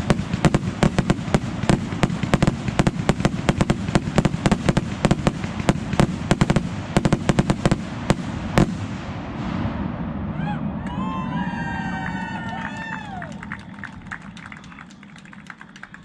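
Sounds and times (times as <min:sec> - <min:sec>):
fireworks bursting with sharp bangs: 0:00.0 - 0:10.4
steady rumble: 0:00.0 - 0:16.0.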